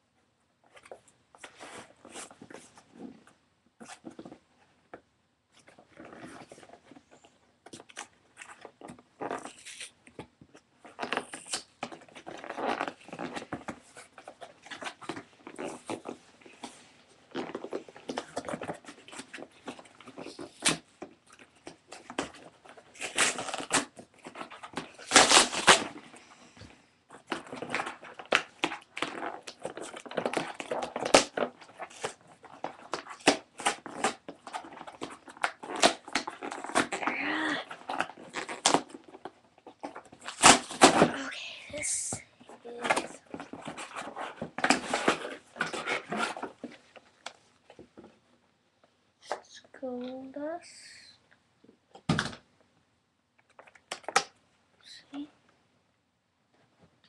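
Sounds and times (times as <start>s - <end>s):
cardboard rustling and crinkling: 5.5s - 41.4s, 42.2s - 48.2s
cardboard tearing: 10.9s - 16.2s, 21.6s - 26.0s, 27.3s - 41.2s, 42.7s - 46.7s.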